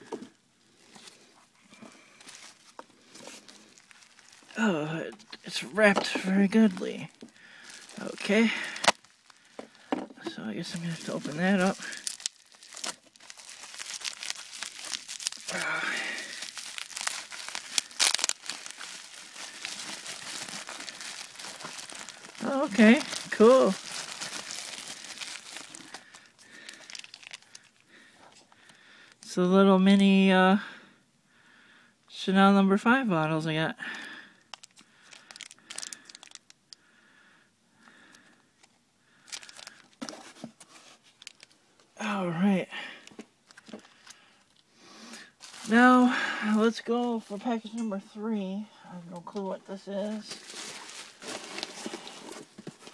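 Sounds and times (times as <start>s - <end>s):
bubble wrap crinkling: 2.1s - 29.3s, 34.5s - 36.8s, 38.6s - 41.6s, 43.4s - 44.6s, 45.2s - 47.7s, 50.0s - 52.9s.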